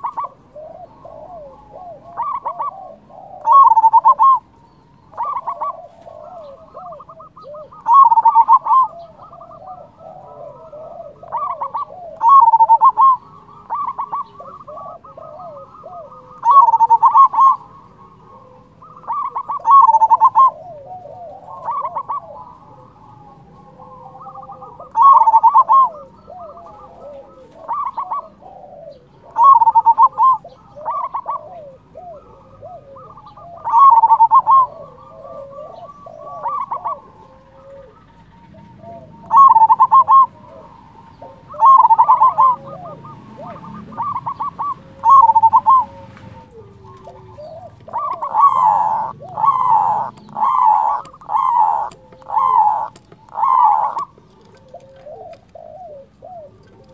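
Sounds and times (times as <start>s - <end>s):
dove cooing: 0.0s - 56.9s.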